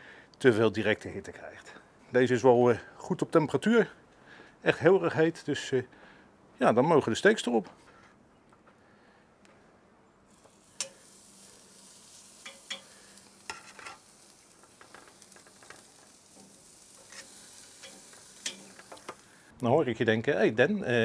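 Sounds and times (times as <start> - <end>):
steaks sizzling on grill: 10.3 - 19.5.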